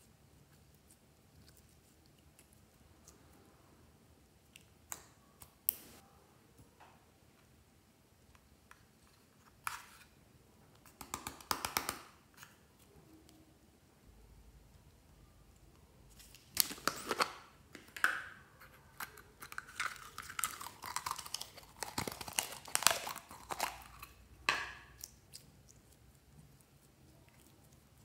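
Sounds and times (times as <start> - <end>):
plastic container crinkling: 19.1 - 24.1.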